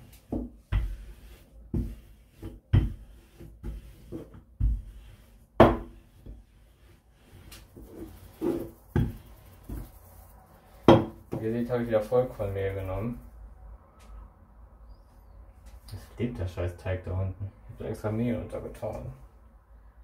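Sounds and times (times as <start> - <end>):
rolling pin thumping dough: 0.1 - 6.5, 7.8 - 10.0, 10.8 - 11.5.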